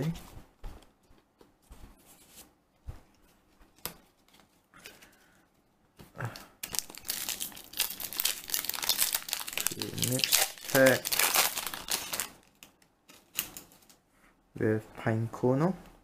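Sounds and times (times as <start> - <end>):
foil wrapper tearing and crinkling: 6.7 - 12.6.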